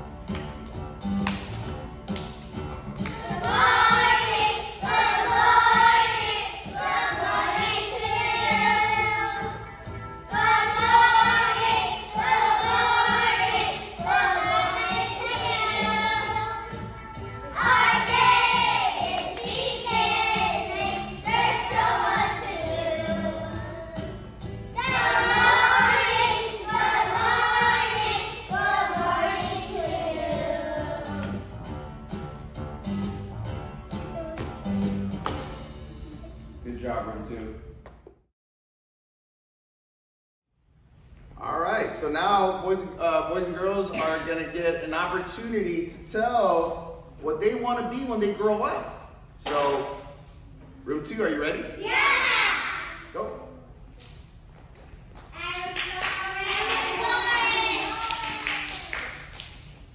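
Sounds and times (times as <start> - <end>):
musical accompaniment: 0.0 - 37.0
children singing: 3.1 - 9.6, 10.3 - 24.2, 24.8 - 31.4.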